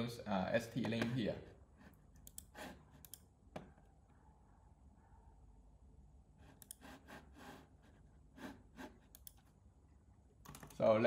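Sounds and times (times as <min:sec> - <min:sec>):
faint keyboard and mouse clicks: 0:02.1 - 0:03.7, 0:09.1 - 0:09.6, 0:10.4 - 0:10.9.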